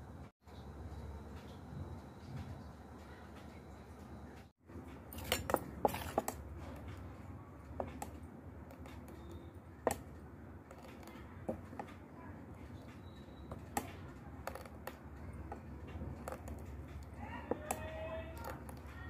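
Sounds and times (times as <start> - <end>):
spoon clinking against metal: 5.0 - 6.4
batter stirred in steel bowl: 5.0 - 7.1, 7.7 - 19.0.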